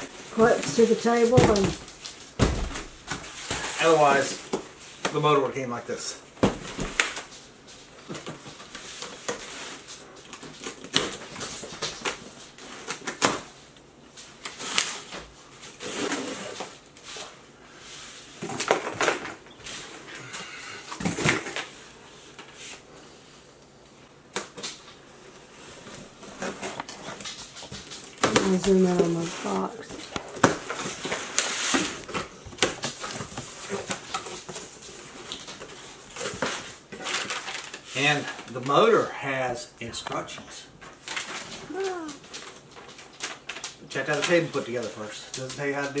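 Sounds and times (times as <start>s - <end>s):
packing tape peeling: 14.3s - 17.3s.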